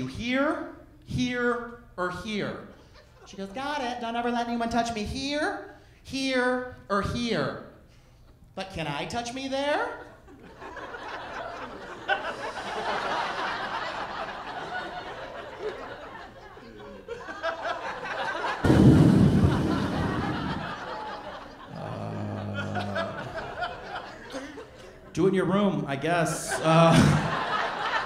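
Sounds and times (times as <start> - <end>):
audience laughing: 10.3 - 25.1, 26.4 - 28.0
loud low blast of noise: 18.6 - 23.4.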